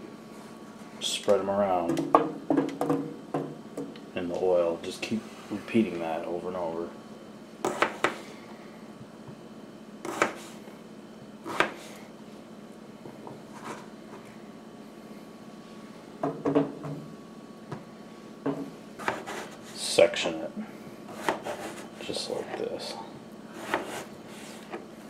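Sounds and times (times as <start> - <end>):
knife chopping on plastic board: 7.6 - 8.2, 10.1 - 10.5, 11.5 - 11.8, 18.5 - 19.5, 23.6 - 24.1.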